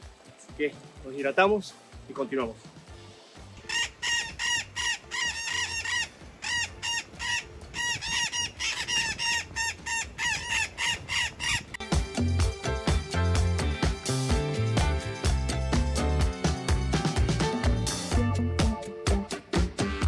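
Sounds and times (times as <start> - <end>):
bird squawking rapidly: 3.6 - 11.8.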